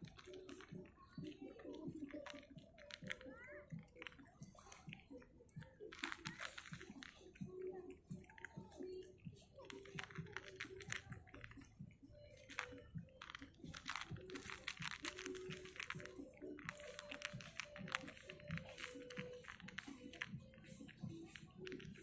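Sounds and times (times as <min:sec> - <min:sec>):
cat crunching dry kibble: 0:09.6 - 0:11.7, 0:12.3 - 0:22.0.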